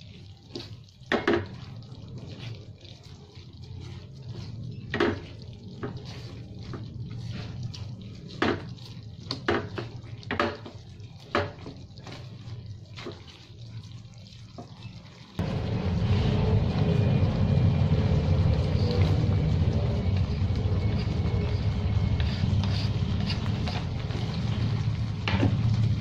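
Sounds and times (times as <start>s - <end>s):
spatula stirring thick sauce: 0.0s - 25.2s
steady low hum: 15.4s - 26.0s.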